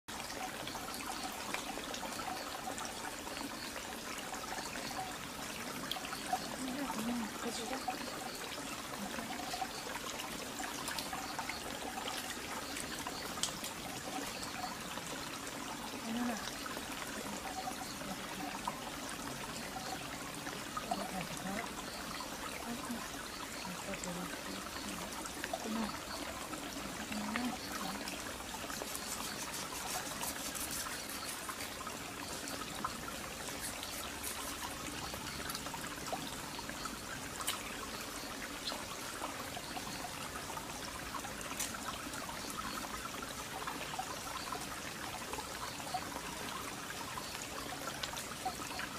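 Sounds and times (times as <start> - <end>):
stream trickling: 0.0 - 48.9.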